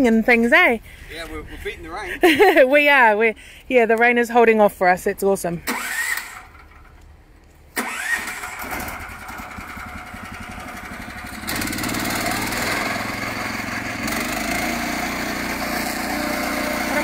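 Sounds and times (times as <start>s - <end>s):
sawmill engine running: 7.8s - 17.0s.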